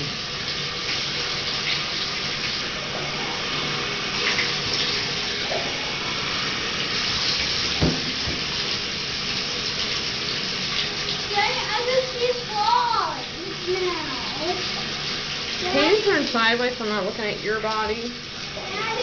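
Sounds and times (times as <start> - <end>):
water running into bathtub: 0.0 - 19.0
short knock: 7.8 - 8.4.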